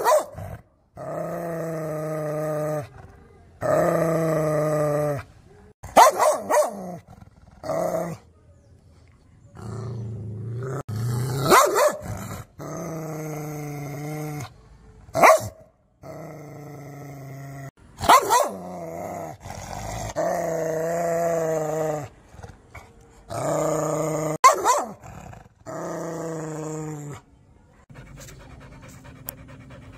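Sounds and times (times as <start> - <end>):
dog barking: 0.0 - 0.4, 5.8 - 6.8, 11.4 - 12.1, 15.2 - 15.6, 18.0 - 18.6, 24.4 - 25.0.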